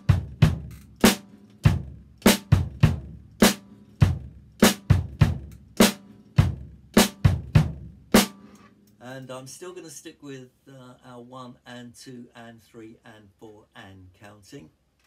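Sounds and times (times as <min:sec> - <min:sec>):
double kick drum thumping: 0:04.0 - 0:08.3
snare drum strokes: 0:08.2 - 0:08.7.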